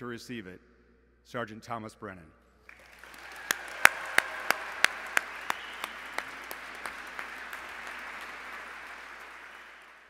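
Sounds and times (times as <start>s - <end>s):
audience applauding: 2.7s - 10.0s
sharp claps close by: 2.7s - 10.0s.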